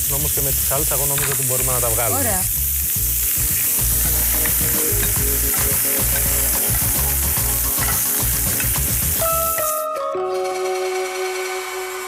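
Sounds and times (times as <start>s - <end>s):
chicken sizzling in frying pan: 0.0s - 9.8s.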